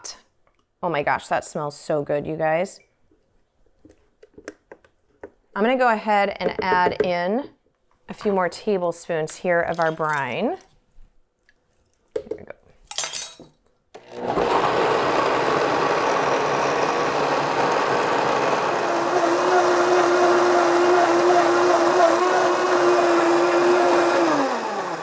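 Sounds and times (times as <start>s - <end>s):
blender running: 14.0s - 25.0s.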